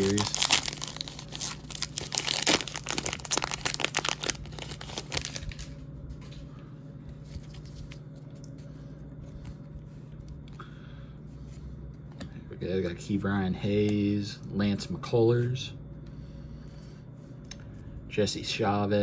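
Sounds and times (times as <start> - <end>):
plastic wrapper tearing and crinkling: 0.0 - 5.8.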